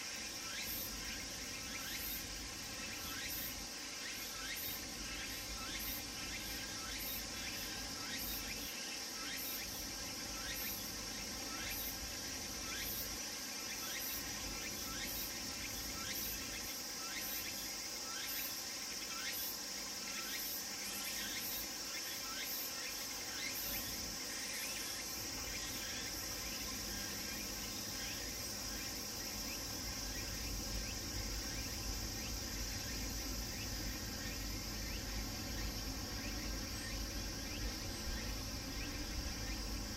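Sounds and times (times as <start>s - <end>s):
cicada chorus: 0.0s - 39.9s
pulsed cicada call: 0.0s - 39.9s.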